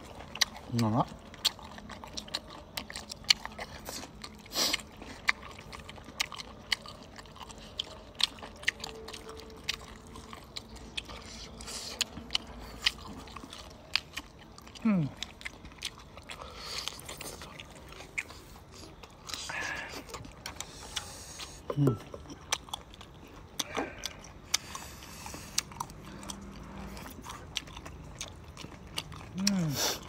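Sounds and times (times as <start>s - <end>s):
chewing with wet mouth clicks: 0.0s - 30.0s.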